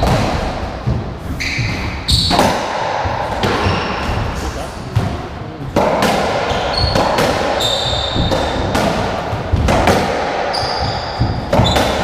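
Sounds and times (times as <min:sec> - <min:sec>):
ball smacking rackets and walls: 0:00.0 - 0:12.0
shoes squeaking on wooden floor: 0:01.0 - 0:02.4, 0:06.5 - 0:08.7, 0:10.5 - 0:12.0.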